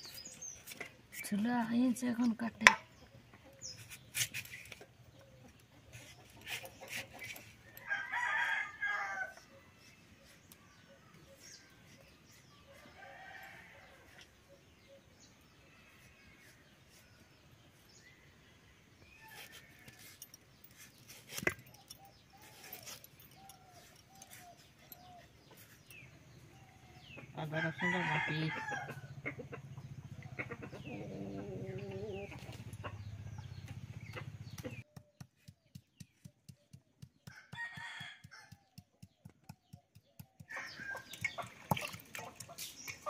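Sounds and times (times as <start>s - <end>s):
rooster crowing: 27.4s - 29.1s.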